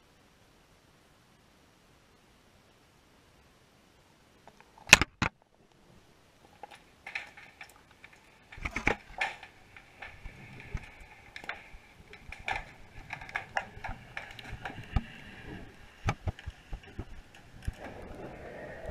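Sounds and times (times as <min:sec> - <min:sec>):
faint hum: 0:00.0 - 0:18.9
muffled underwater knocks and clicks: 0:06.5 - 0:18.1.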